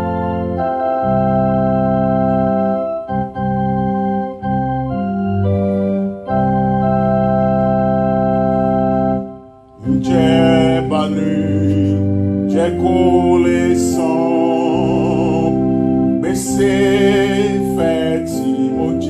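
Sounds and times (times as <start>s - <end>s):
organ keyboard playing hymn chords: 0.0s - 19.0s
man singing: 9.8s - 19.0s.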